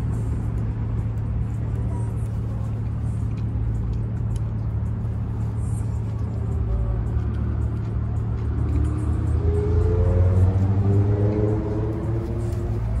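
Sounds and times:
low mechanical hum: 0.0s - 13.0s
street traffic: 0.0s - 13.0s
chewing clicks: 3.1s - 4.8s.

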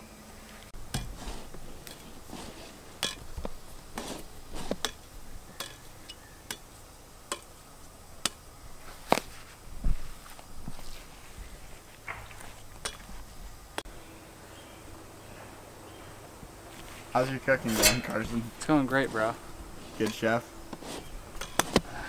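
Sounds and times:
dull thump: 9.8s - 10.1s.

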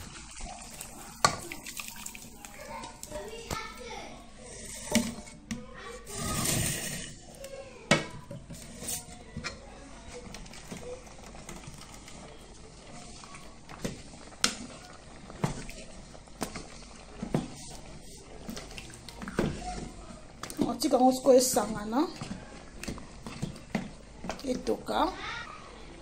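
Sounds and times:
utensil scraping a pot: 4.2s - 7.4s, 8.3s - 24.7s.

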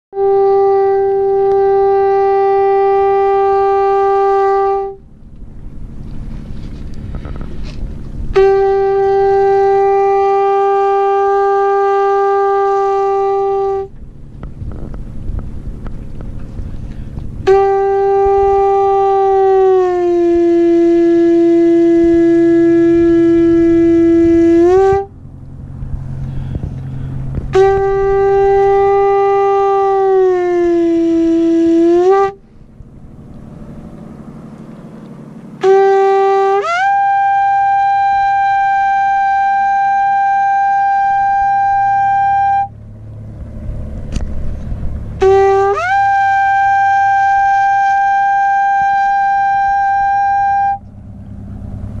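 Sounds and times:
conch shell trumpet blasts: 0.2s - 5.1s, 7.1s - 14.0s, 16.8s - 25.3s, 26.0s - 32.4s, 35.6s - 42.8s, 45.1s - 51.2s.

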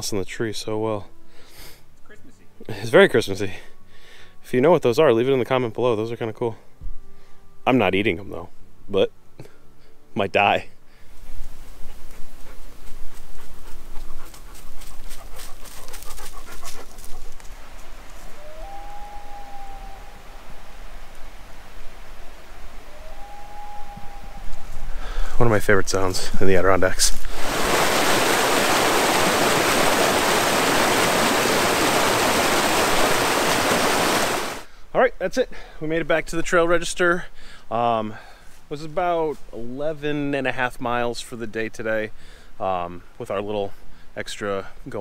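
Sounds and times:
dog panting: 12.0s - 17.4s
stream rushing over boulders: 27.2s - 34.7s.

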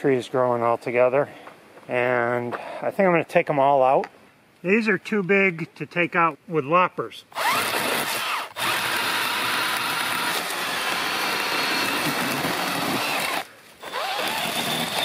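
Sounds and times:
cordless chainsaw cutting stems: 7.3s - 15.0s.

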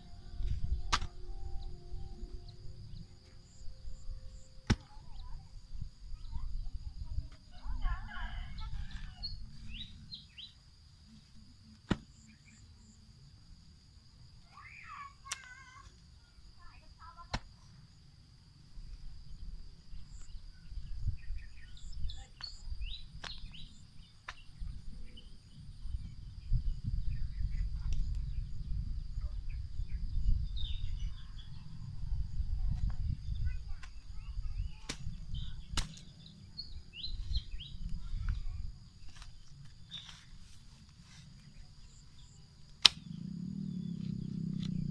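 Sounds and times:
high insect drone: 0.0s - 44.9s
hoe chopping and scraping soil: 0.9s - 1.1s, 11.8s - 12.3s
bird chirps: 19.3s - 31.9s, 33.0s - 38.3s.

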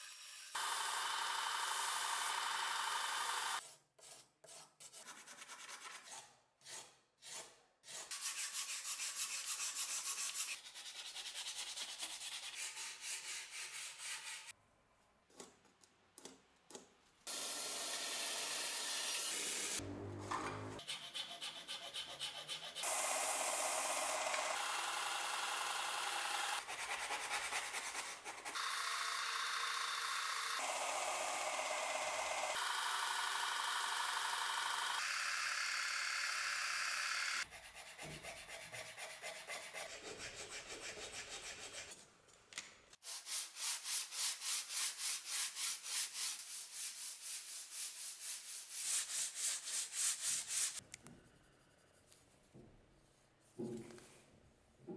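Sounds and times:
hand file strokes on wood: 37.4s - 42.1s.

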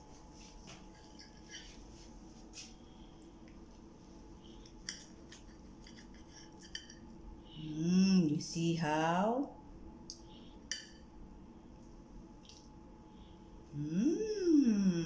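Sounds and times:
cutlery scraping and clicking on plate: 0.9s - 1.8s, 4.8s - 7.0s.

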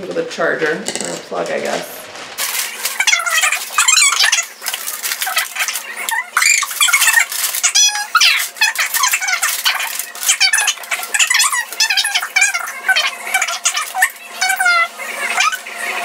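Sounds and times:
paper rustling: 1.6s - 14.1s
plastic parts squeaking and rattling: 2.1s - 15.7s.

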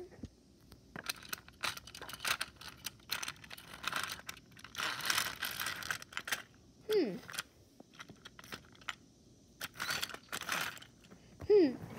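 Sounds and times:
toy train cars clicking and rattling: 1.0s - 11.1s.

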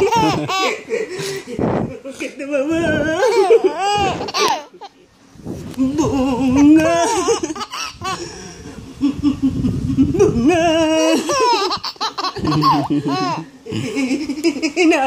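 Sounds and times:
baby laughing: 0.0s - 1.4s, 3.0s - 5.0s, 6.0s - 8.3s, 9.6s - 14.8s.

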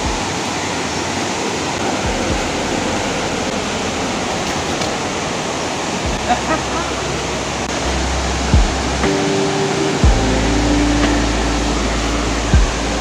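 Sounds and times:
waterfall rushing: 0.0s - 13.0s.

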